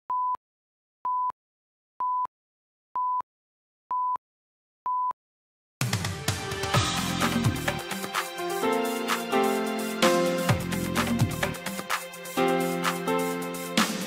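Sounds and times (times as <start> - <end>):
electronic theme music: 5.8 - 14.0.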